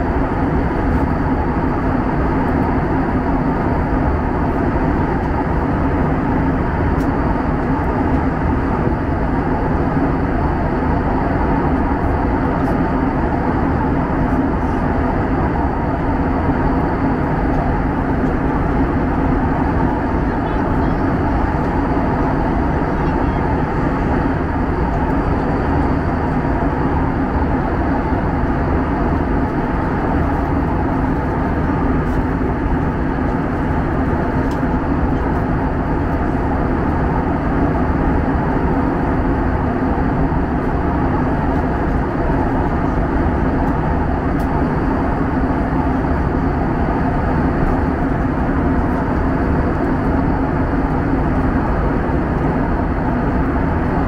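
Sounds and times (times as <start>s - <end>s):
airplane cabin noise: 0.0s - 54.0s.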